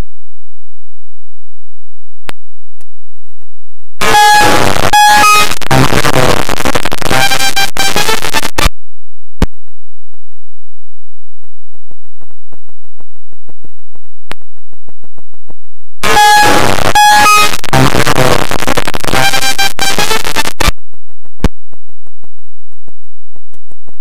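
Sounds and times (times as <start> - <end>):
loud distorted music: 4.0 - 8.7, 16.0 - 20.8.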